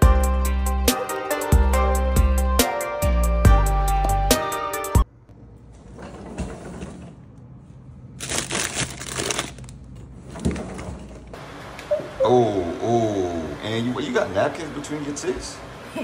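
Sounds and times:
background music: 0.0 - 5.1
plastic bags rustling and crinkling: 8.2 - 10.6.

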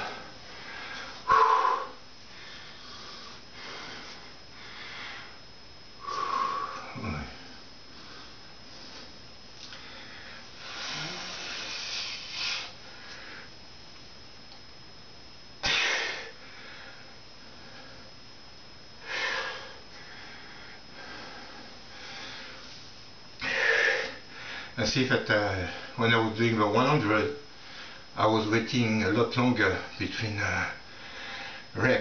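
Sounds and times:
man breathing hard: 0.0 - 5.4, 6.0 - 13.6, 15.6 - 18.1, 19.0 - 22.8, 23.4 - 24.8, 30.9 - 31.7.

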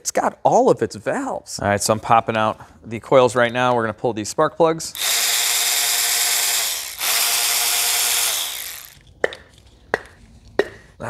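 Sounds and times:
powered ratchet spinning: 4.9 - 9.0
tools clicking: 4.9 - 9.7.

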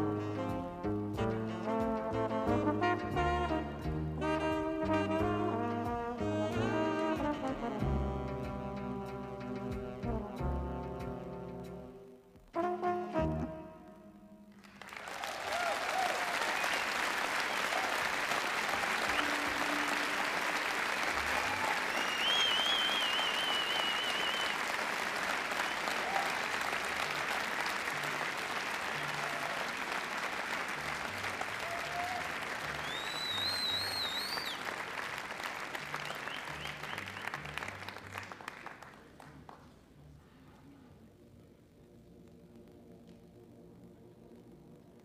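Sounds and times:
low instrument notes: 0.0 - 14.6
audience applauding: 14.5 - 39.9
piercing whistles: 21.7 - 24.7, 32.8 - 34.7.

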